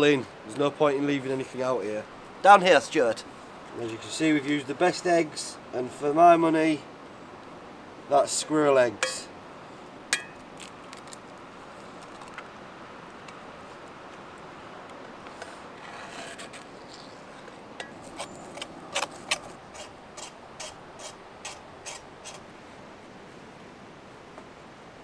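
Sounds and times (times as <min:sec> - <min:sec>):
metal spoon scraping skillet: 0:15.4 - 0:22.4.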